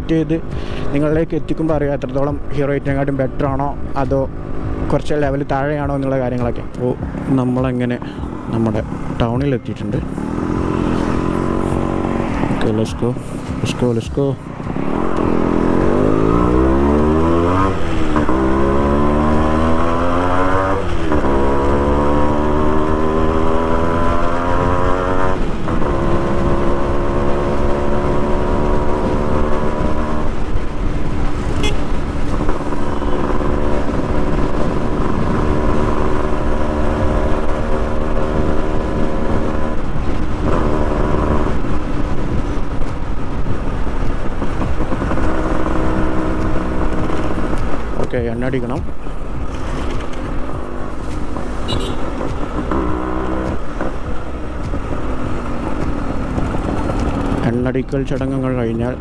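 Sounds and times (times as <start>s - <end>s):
wind rush on microphone: 0.0s - 59.0s
two-stroke motorcycle engine: 15.0s - 59.0s.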